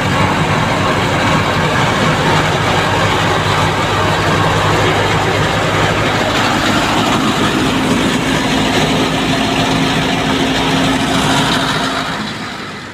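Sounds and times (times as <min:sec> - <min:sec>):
threshing machine din: 0:00.0 - 0:12.9
tractor engine: 0:00.0 - 0:12.9.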